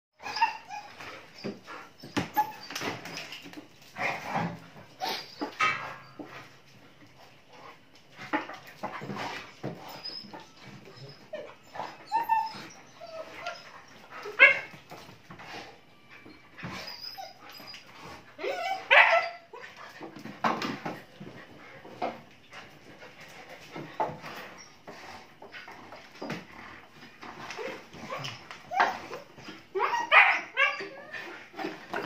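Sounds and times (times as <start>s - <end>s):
puppies yipping and whining: 0.2s - 6.7s, 8.2s - 21.7s, 22.5s - 32.0s.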